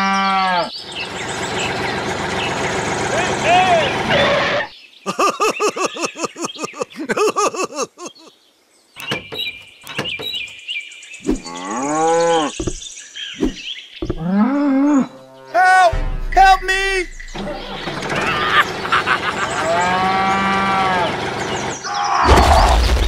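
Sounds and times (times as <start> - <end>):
cattle mooing: 11.5 - 12.6, 14.1 - 15.6, 19.4 - 21.1.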